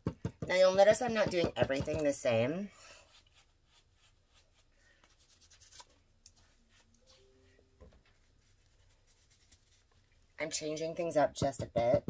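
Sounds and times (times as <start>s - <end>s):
stencil brush tapping and rubbing: 0.0s - 2.4s, 11.4s - 12.0s.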